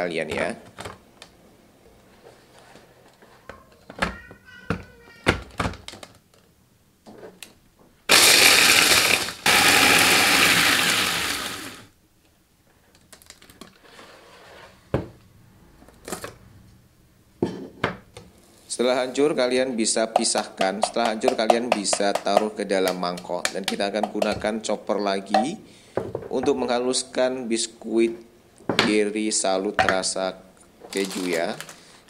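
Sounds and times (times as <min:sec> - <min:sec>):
electric food chopper running: 0:08.1 - 0:11.9.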